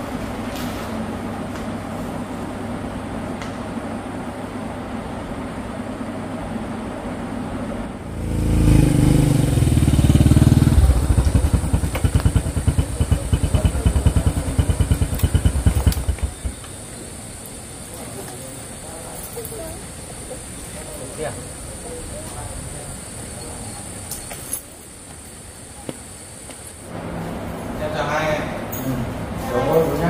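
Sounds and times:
small engine throbbing: 8.0 - 17.4.

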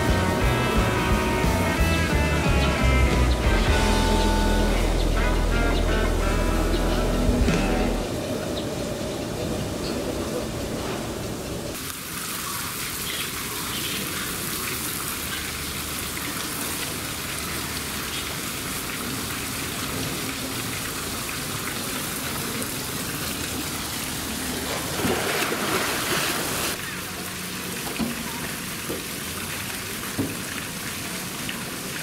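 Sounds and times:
water splashing and pattering: 11.7 - 32.0.

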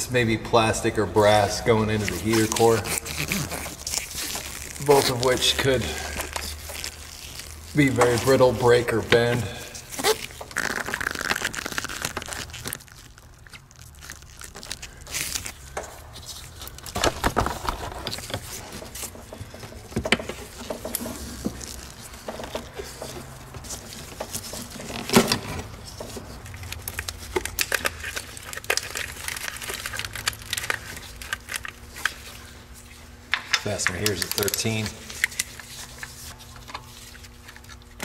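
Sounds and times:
rubber hoses rubbing and scraping: 1.2 - 27.3.

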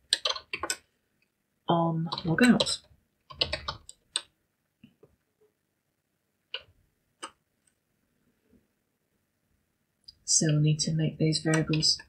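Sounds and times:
keyboard keystrokes: 0.1 - 0.8, 2.1 - 4.3.

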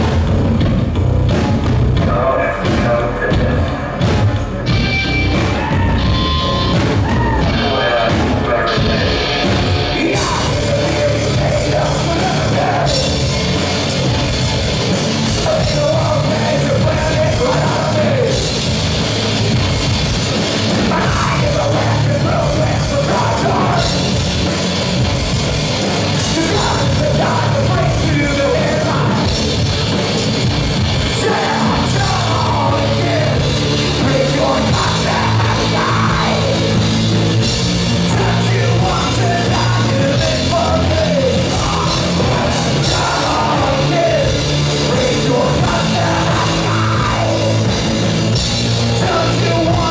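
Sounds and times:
rock band playing: 0.0 - 49.9
person singing: 5.5 - 13.7, 15.1 - 18.6, 20.7 - 24.2, 26.2 - 29.4, 31.0 - 36.9, 38.0 - 47.8, 48.9 - 49.9.

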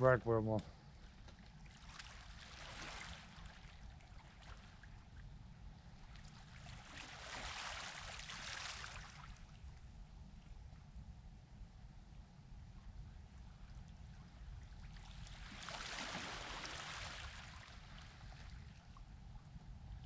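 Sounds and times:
low steady rumble: 0.0 - 20.0
small waves washing on beach: 6.6 - 9.4, 15.0 - 18.5.

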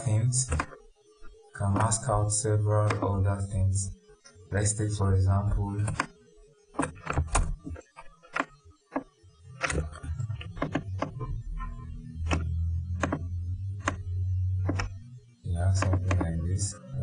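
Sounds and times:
low steady hum: 0.0 - 6.2, 6.8 - 17.0
computer mouse clicks: 0.4 - 0.8, 1.7 - 2.0, 2.8 - 3.1, 5.8 - 6.2, 6.8 - 11.2, 12.2 - 14.0, 14.6 - 15.0, 15.8 - 16.4.

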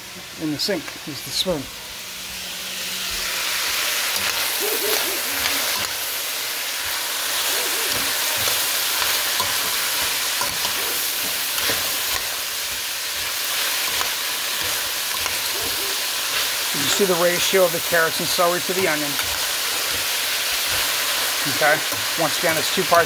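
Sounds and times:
vegetables sizzling in a pot: 0.0 - 23.0
metal spoon stirring: 6.8 - 17.5, 18.1 - 22.6.

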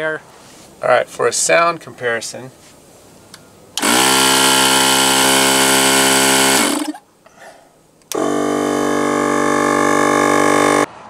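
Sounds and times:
air compressor smooth hum: 2.5 - 7.0, 7.7 - 11.0
air compressor harsh hissy whine: 3.8 - 7.0, 8.1 - 10.9.

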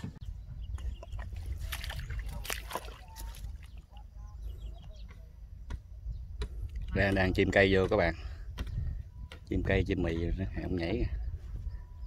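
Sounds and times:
mud and water sloshing: 0.7 - 5.2.

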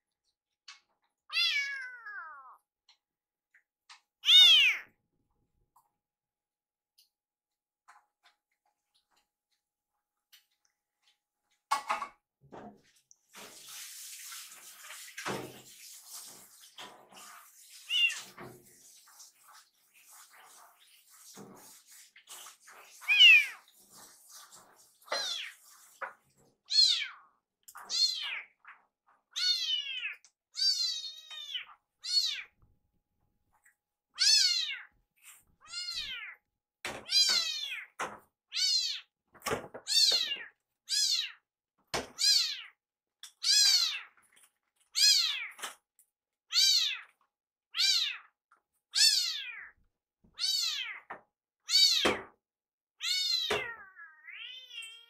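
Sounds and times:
kitten meowing: 1.3 - 2.6, 4.2 - 4.9, 23.0 - 23.6, 29.4 - 32.5, 34.2 - 34.9, 35.6 - 36.4, 47.8 - 48.3, 49.0 - 49.7, 50.4 - 51.0.

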